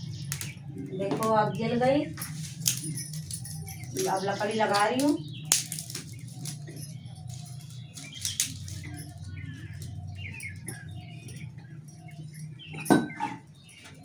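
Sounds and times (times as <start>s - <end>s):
birds chirping: 0.0s - 14.0s
kindling crackling and rustling: 0.0s - 14.0s
twigs snapping: 0.1s - 1.3s, 2.3s - 10.9s.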